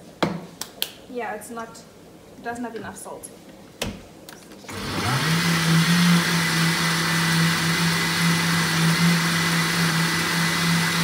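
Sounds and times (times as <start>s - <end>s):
blender motor running: 4.7s - 11.0s.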